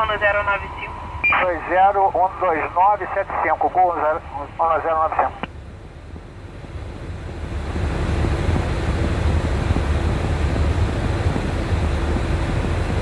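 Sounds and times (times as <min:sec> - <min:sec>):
jet engines rumbling in cabin: 0:00.0 - 0:13.0.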